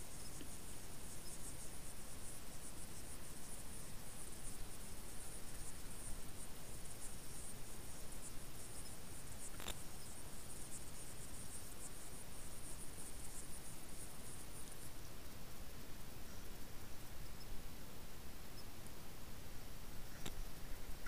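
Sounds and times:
crickets trilling: 0.0s - 21.0s
sharp click: 20.2s - 20.4s.

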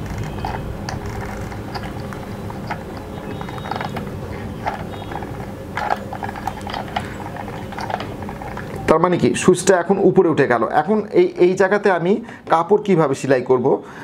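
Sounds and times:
sewing machine gears clicking: 0.0s - 8.9s.

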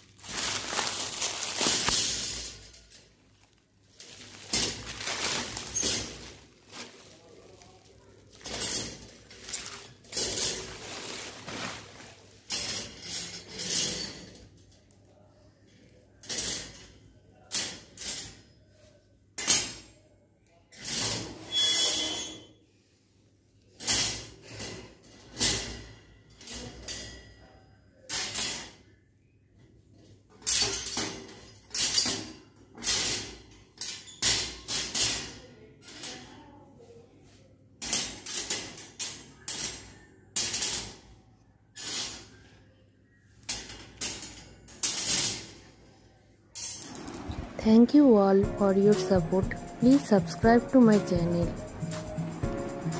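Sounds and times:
plastic wrapping crinkling: 0.0s - 8.5s, 9.1s - 12.5s
metal frames clanking on stone floor: 1.6s - 3.2s, 8.4s - 11.0s, 12.4s - 14.6s, 30.3s - 35.3s.

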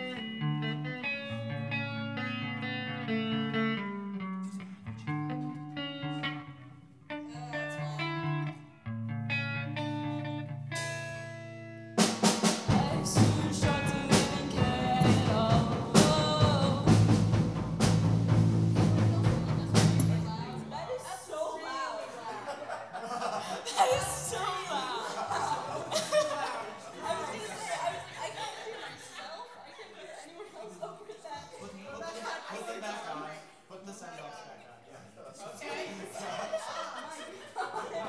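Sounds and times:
bass notes: 0.0s - 12.1s, 12.7s - 21.0s
picked guitar line: 0.0s - 21.0s
drums: 10.6s - 21.0s.

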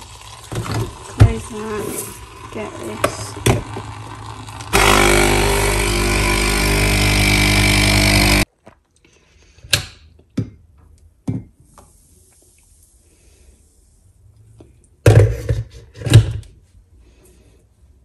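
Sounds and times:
coffee machine pump humming: 0.0s - 8.5s.

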